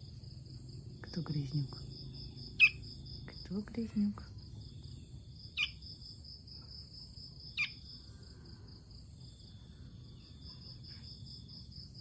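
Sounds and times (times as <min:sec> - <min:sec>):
insects chorus pulsing: 0:00.0 - 0:12.0
fledgling bird chirps: 0:02.2 - 0:02.8, 0:04.7 - 0:05.8, 0:07.6 - 0:07.9.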